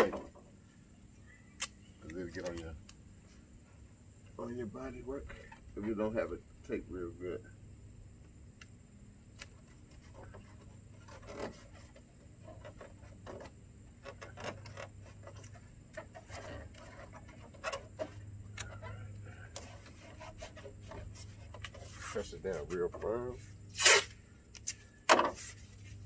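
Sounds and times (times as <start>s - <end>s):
steady low hum: 0.0s - 26.0s
tape crinkling and rubbing: 9.3s - 18.9s, 19.5s - 26.0s.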